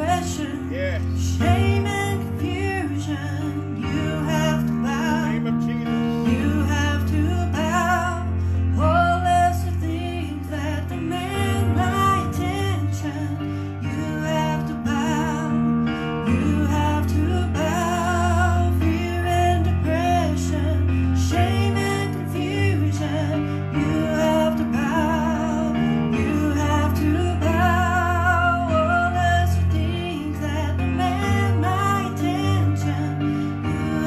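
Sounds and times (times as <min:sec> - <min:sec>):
electronic keyboard: 0:00.0 - 0:34.0.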